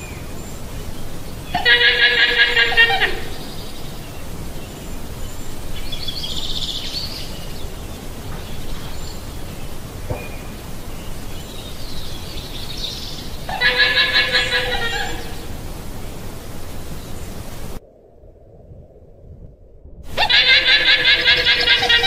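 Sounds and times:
faint high-pitched pulsing calls: 0.0 - 17.8, 20.1 - 22.0
low rumble: 15.4 - 20.3.

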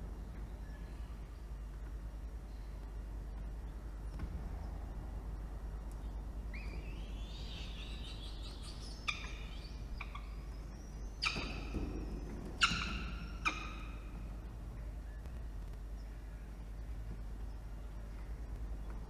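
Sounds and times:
low rumble: 0.0 - 19.0
falcon chick whining: 6.5 - 14.2
falcon chick screeches: 11.2 - 11.8, 12.6 - 14.0.

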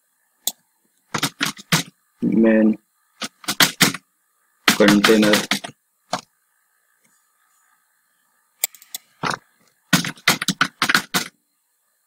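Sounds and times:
computer keyboard typing: 1.1 - 1.9, 3.2 - 4.0, 4.6 - 5.7, 9.9 - 11.3.

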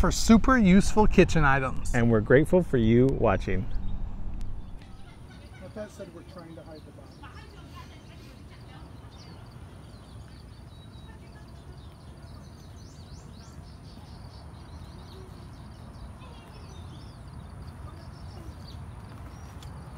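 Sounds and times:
low rumble of background noise: 0.0 - 19.9
small birds chirping: 4.6 - 19.9.

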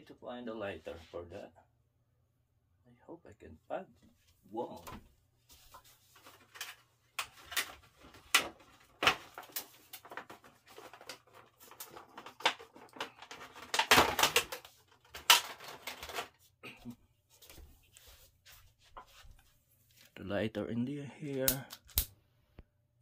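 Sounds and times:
rummaging through hard objects: 5.8 - 16.4.

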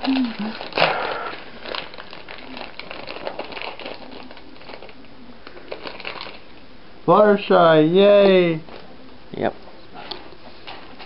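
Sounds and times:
foil packet crinkling: 0.0 - 6.6.

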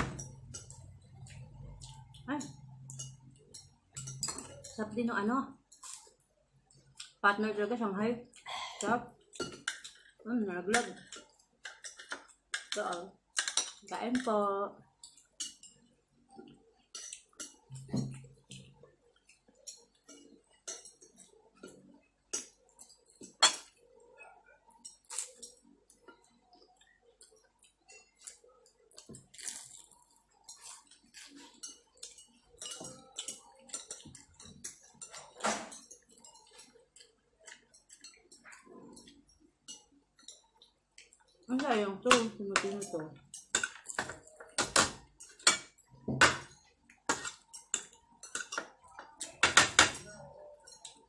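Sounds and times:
cutlery clinking on plates: 2.4 - 4.8, 10.8 - 12.8, 19.6 - 23.8, 30.4 - 41.2, 42.1 - 51.0.

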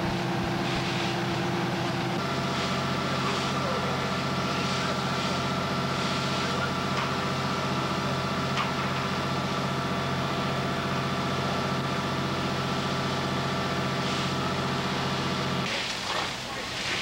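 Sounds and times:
diesel engine droning: 0.0 - 17.0
hiss: 0.6 - 1.2, 2.4 - 6.7, 14.0 - 14.5, 15.6 - 17.0.

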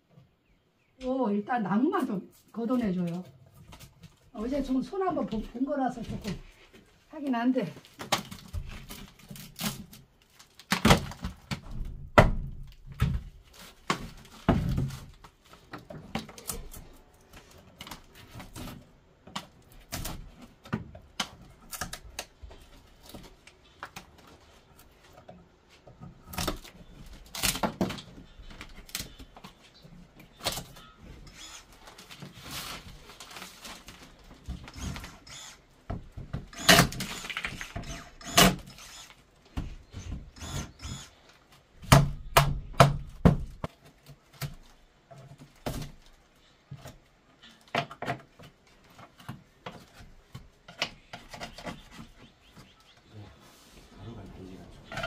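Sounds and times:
rotten wood cracking and knocking: 7.8 - 24.3, 25.8 - 30.9, 41.7 - 52.7.

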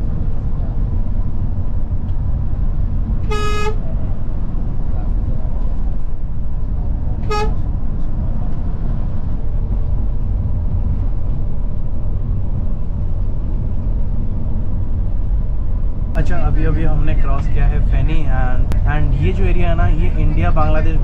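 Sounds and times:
coach engine rumble from inside: 0.0 - 21.0
short horn toot: 3.2 - 3.8, 7.2 - 7.6.

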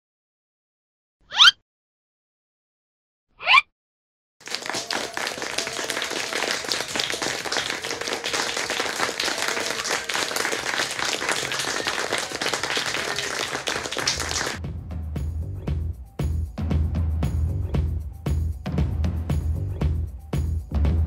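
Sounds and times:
crowd applause: 4.4 - 14.6.

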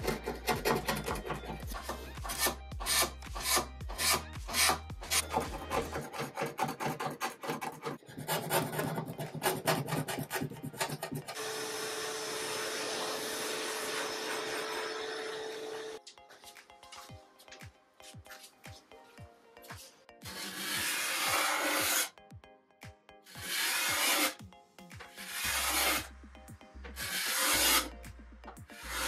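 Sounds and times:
steel scraper rasping on wood: 0.0 - 16.0, 20.2 - 22.1, 23.3 - 24.4, 25.1 - 26.1, 27.0 - 28.0, 28.7 - 29.0
vacuum cleaner running: 11.4 - 16.0.

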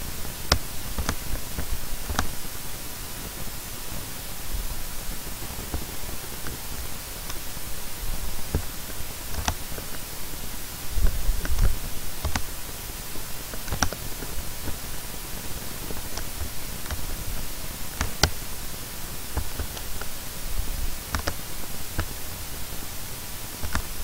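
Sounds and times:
microphone hiss: 0.0 - 24.0
computer mouse clicks: 0.5 - 2.4, 9.3 - 10.0, 11.0 - 12.6, 13.5 - 14.8, 18.0 - 18.4, 21.1 - 22.2, 23.6 - 24.0.

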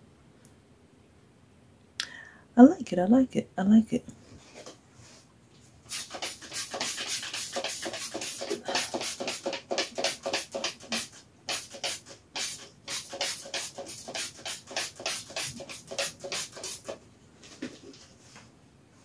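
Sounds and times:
spray bottle hissing squirts: 5.9 - 17.0.

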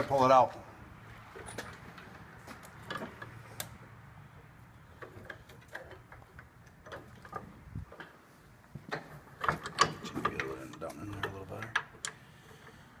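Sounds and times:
metal clicks and knocks: 1.3 - 3.8, 4.9 - 8.2, 8.8 - 12.8.

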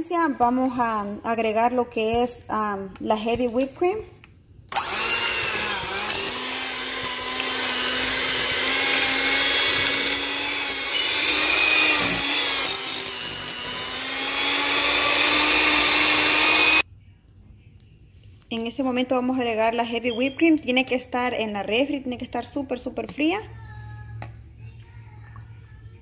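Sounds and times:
electric mixer running: 4.7 - 16.8.

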